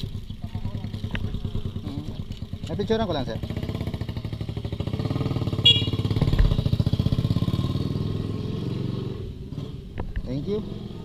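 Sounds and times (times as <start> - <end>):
motorcycle engine idling: 0.0 - 7.4.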